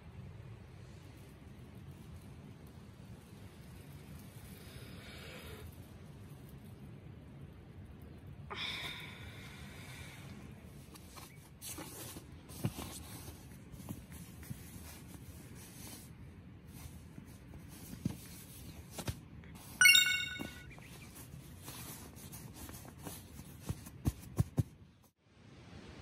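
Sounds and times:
short high-pitched tone: 19.8 - 20.7.

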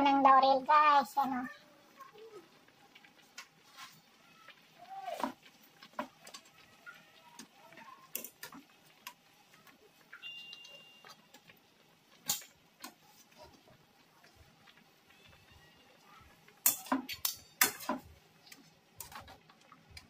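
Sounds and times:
tongs clicking on a wok: 5.2 - 6.6, 7.3 - 13.0, 16.4 - 20.0.

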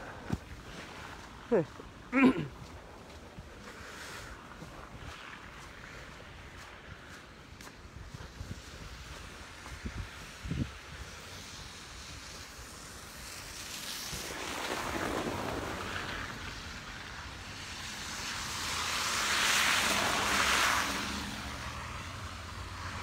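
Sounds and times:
wind gusting over microphone: 7.8 - 11.2.

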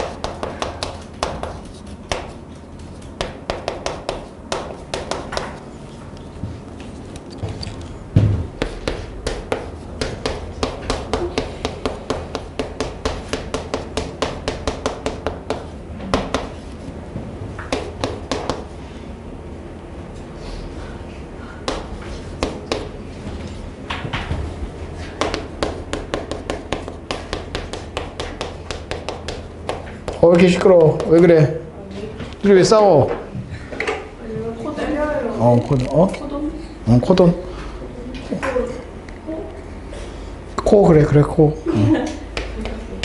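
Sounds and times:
chalk tapping on a blackboard: 0.0 - 5.6, 8.6 - 16.8, 17.6 - 18.7, 21.6 - 22.9, 25.0 - 31.3.

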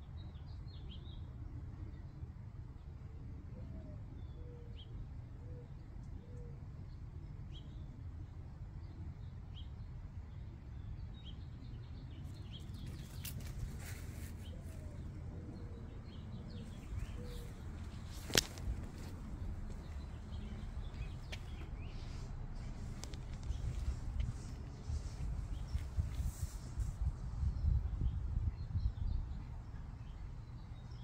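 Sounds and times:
low background rumble: 0.0 - 31.0
small birds chirping: 8.7 - 31.0
leaves rustling: 12.8 - 15.1, 16.7 - 19.8.

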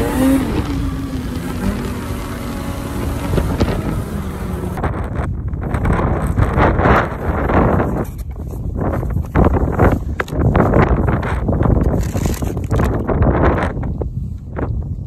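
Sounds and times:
snowmobile engine: 0.0 - 4.9
wind on microphone: 0.0 - 15.0.

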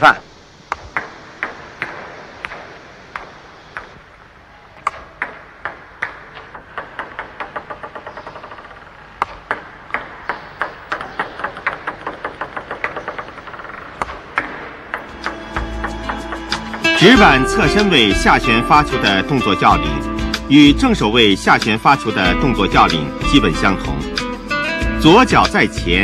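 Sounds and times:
table tennis ball hitting paddle: 4.8 - 16.9
table tennis balls bouncing on table: 4.8 - 17.0.

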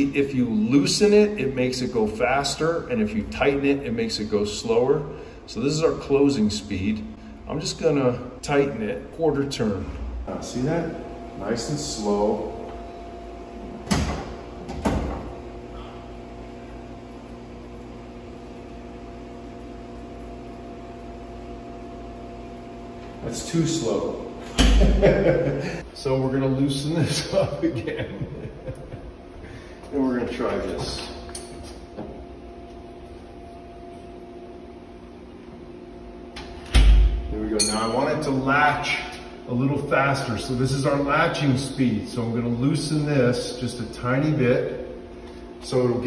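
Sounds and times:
steady hum: 0.0 - 46.0
heavy door closing slowly: 13.7 - 16.0.

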